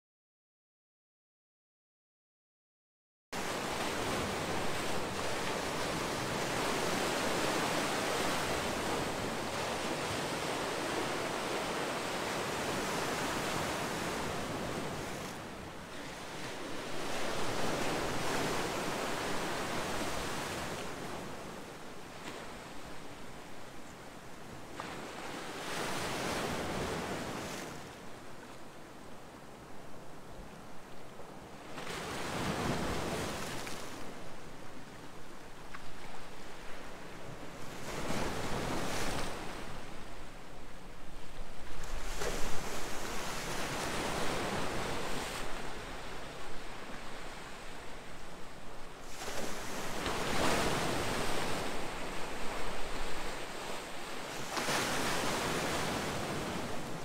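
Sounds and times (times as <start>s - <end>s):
waves breaking on rocky shore: 49.1s - 57.0s.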